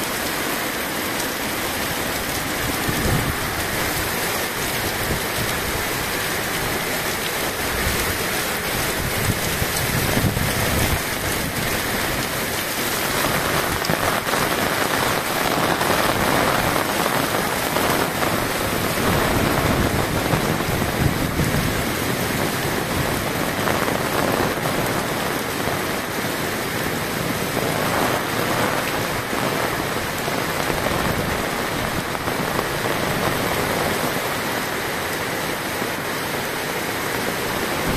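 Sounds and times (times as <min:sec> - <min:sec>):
heavy rain pouring on street: 0:00.0 - 0:37.9.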